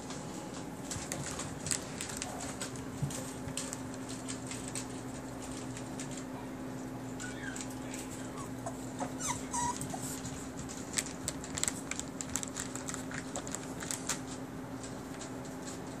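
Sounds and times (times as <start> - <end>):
paws clicking on turf: 0.0 - 16.0
steady low hum: 0.0 - 16.0
puppy whimpering: 7.1 - 10.3.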